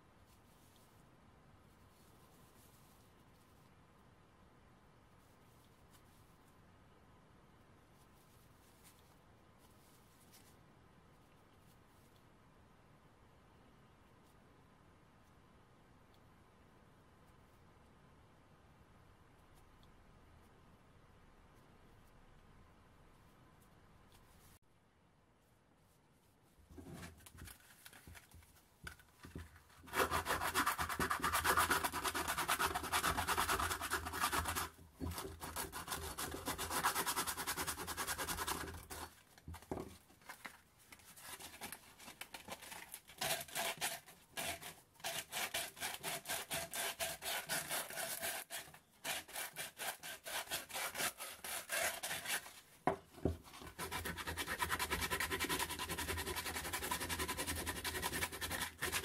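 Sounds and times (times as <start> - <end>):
sandpaper scraping metal: 43.1 - 52.6.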